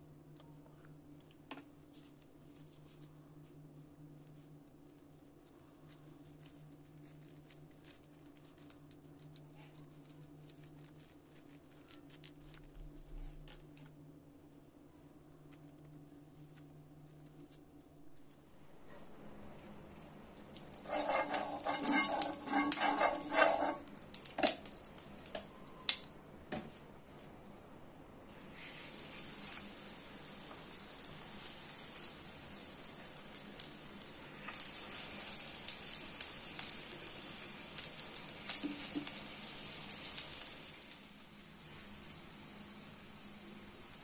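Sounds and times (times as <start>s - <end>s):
oil sizzling and crackling: 19.0s - 25.5s, 28.3s - 44.0s.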